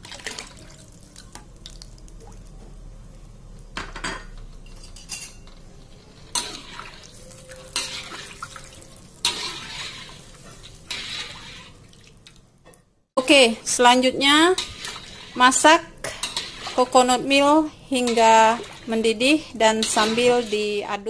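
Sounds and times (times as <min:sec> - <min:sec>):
wooden spatula stirring in pan: 0:05.7 - 0:12.2, 0:13.9 - 0:20.8
spatula knocking and scraping pan: 0:09.2 - 0:11.7, 0:14.3 - 0:17.1.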